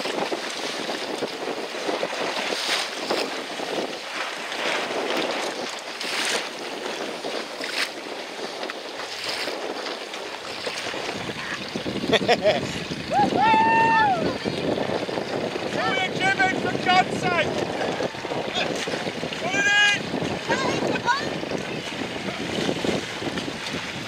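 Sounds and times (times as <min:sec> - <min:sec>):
sea water splashing against boat: 0:00.0 - 0:24.0
wind on microphone: 0:00.0 - 0:24.0.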